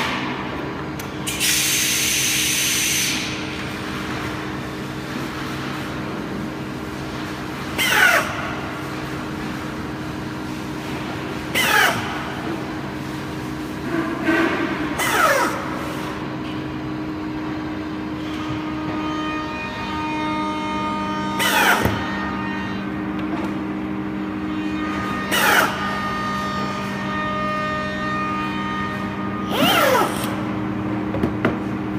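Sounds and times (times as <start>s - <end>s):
hum of held tones: 16.2s - 31.2s
electric drill driving screws: 29.5s - 30.4s.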